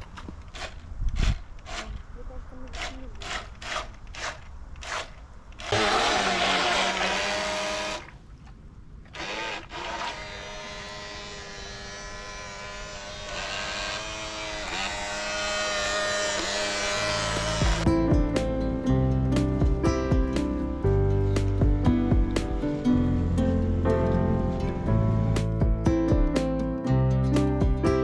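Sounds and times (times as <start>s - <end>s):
small electric motor whining: 2.7s - 8.1s, 9.1s - 17.9s
propeller churning water: 5.7s - 10.9s.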